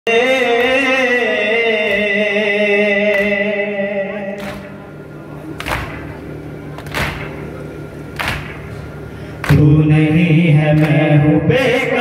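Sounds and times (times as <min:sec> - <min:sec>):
amplified chanting voice: 0:00.1 - 0:06.0, 0:09.0 - 0:12.0
sharp slaps: 0:00.6 - 0:01.0, 0:01.8 - 0:02.3, 0:03.1 - 0:03.5, 0:04.4 - 0:04.8, 0:05.6 - 0:06.2, 0:06.8 - 0:07.4, 0:08.1 - 0:08.7, 0:09.4 - 0:09.7, 0:10.8 - 0:11.0.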